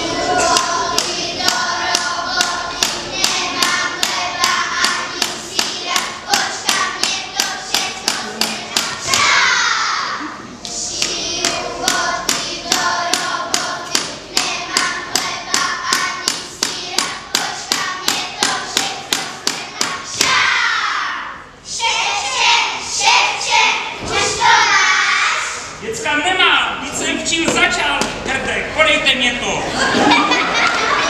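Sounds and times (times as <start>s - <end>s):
children singing: 0.0s - 25.8s, 29.8s - 31.0s
sharp rhythmic claps: 0.4s - 9.7s, 10.6s - 20.6s.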